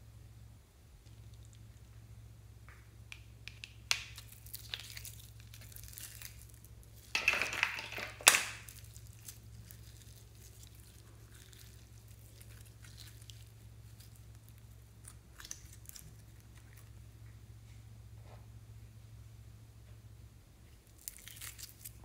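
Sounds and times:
slime squishing: 3.4s - 7.2s, 8.0s - 17.0s, 20.8s - 22.0s
slime tearing crackle: 3.6s - 7.2s, 8.1s - 17.0s, 20.8s - 22.0s.

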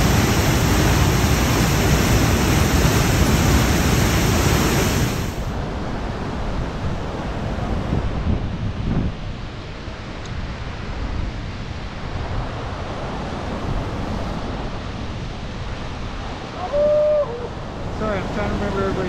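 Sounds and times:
fast river rushing: 0.0s - 8.0s, 11.9s - 19.0s
wind buffeting microphone: 0.0s - 19.0s.

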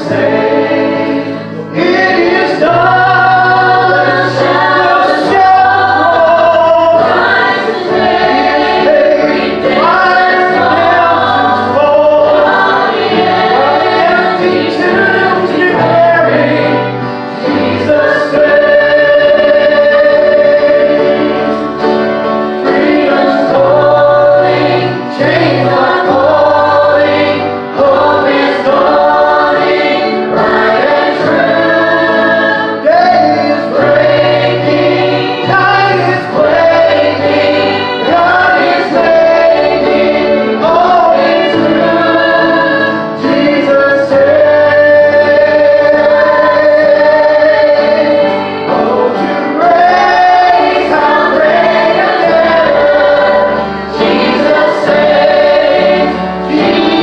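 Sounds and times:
group singing gospel song: 0.0s - 57.0s.

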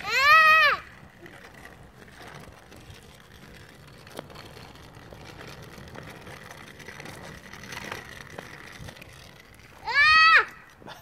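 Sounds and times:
scooter wheels rolling on asphalt: 0.0s - 11.0s.

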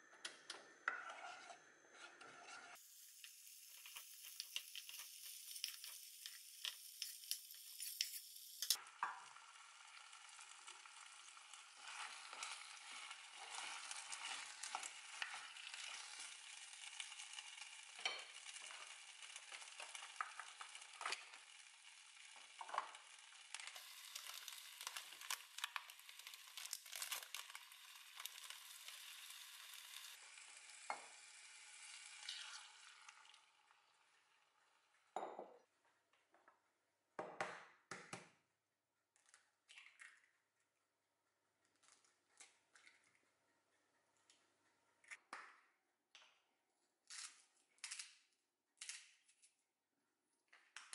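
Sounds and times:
wooden spatula scraping: 0.8s - 8.8s, 11.8s - 16.4s
vegetables sizzling in a pot: 2.7s - 35.0s.

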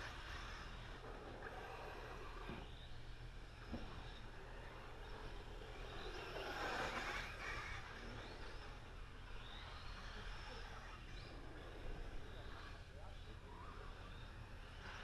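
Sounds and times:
radio-controlled car running: 0.0s - 15.0s.

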